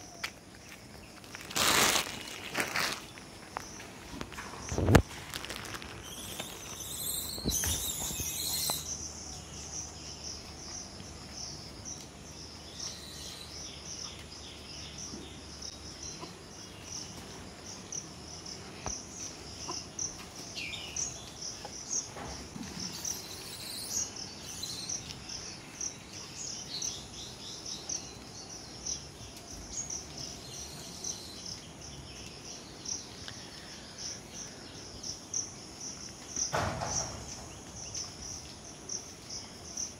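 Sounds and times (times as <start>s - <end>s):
insect chirping trill: 0.0s - 39.9s
rustling noise: 0.5s - 8.9s.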